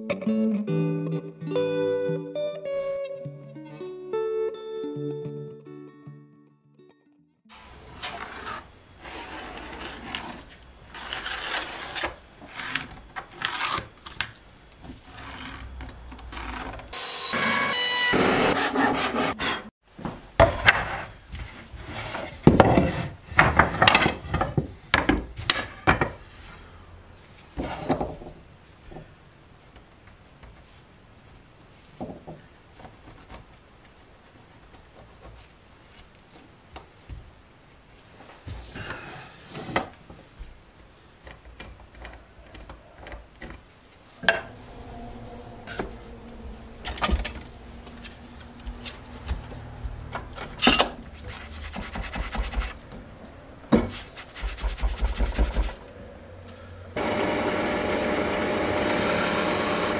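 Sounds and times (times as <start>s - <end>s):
drill press and dust extractor: 17.0s - 18.9s, 57.0s - 59.9s
pencil scratching on wood: 51.1s - 52.9s, 53.9s - 55.8s.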